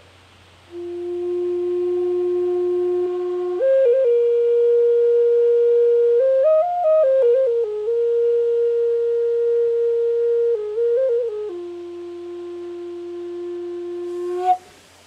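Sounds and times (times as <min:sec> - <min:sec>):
wooden flute melody: 0:00.7 - 0:14.8.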